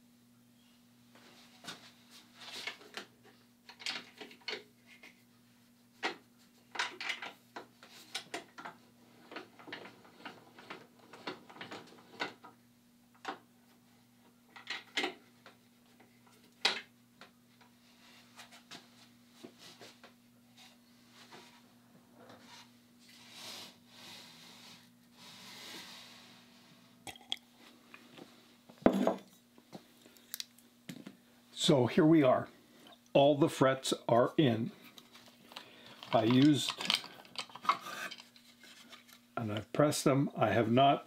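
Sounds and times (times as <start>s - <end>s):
wooden blocks and tools clattering: 3.7s - 5.2s, 35.0s - 39.6s.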